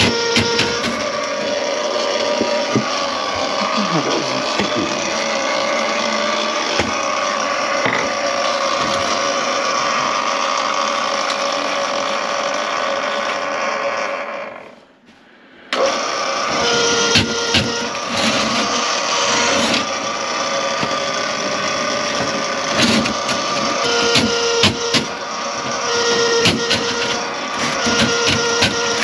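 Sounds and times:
power tool motor humming: 0.0s - 14.6s, 15.8s - 29.0s.

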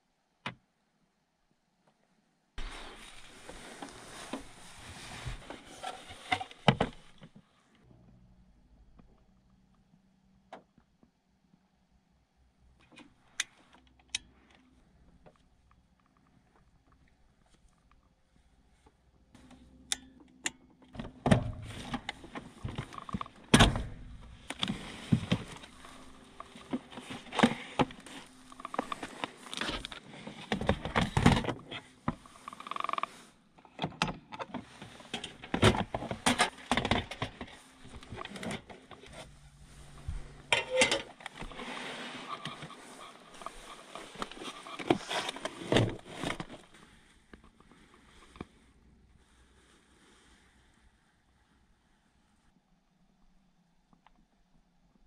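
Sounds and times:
clothing rustling: 2.6s - 7.2s, 21.6s - 33.3s, 34.6s - 48.6s.

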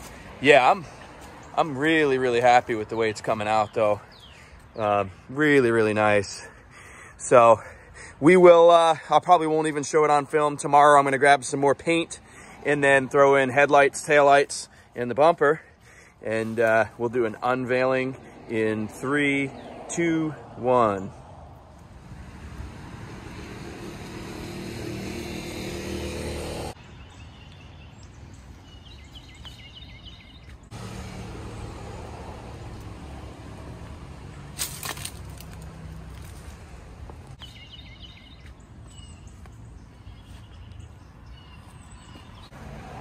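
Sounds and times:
small birds chirping: 0.0s - 7.2s, 11.5s - 20.3s, 22.6s - 30.8s, 35.4s - 42.6s.

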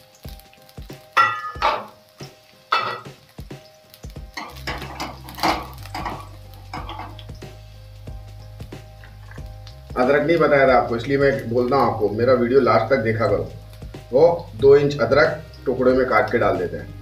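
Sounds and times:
soft sizzle of oil: 0.0s - 17.0s
metal spoon scraping a pan: 2.7s - 3.2s, 4.4s - 7.3s.

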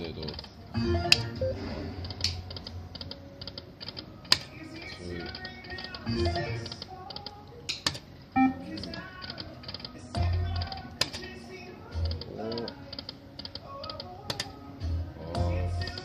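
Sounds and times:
poker machine electronic tune: 0.8s - 2.0s, 8.4s - 8.9s.

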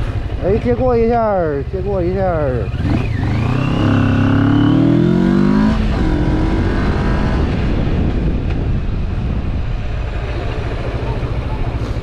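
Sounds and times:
motorcycle engine revving: 0.0s - 8.4s
wind noise on microphone: 4.8s - 10.4s.

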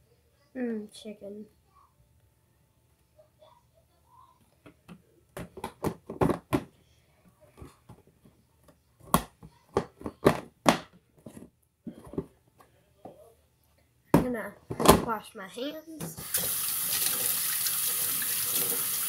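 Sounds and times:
objects knocking on kitchen counter: 5.4s - 6.7s, 9.1s - 12.4s, 14.1s - 15.1s.

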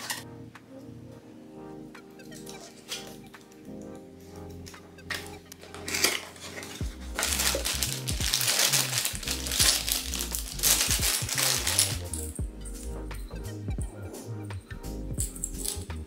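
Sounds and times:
background music with bass line: 0.0s - 16.0s
paper pages rustling: 5.1s - 12.4s
plastic bag and bubble wrap crinkling: 5.1s - 12.4s.

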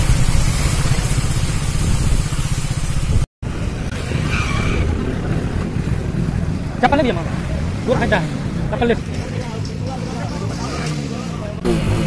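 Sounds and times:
motorcycle engine pulsing: 0.0s - 3.3s.

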